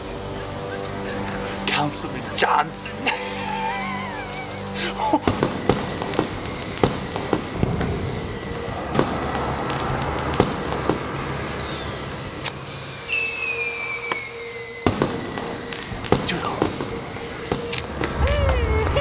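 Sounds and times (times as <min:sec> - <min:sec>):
falling firework whistles: 0:00.0 - 0:02.0, 0:03.0 - 0:19.0
fireworks bangs: 0:05.0 - 0:19.0
low rumble: 0:16.8 - 0:19.0.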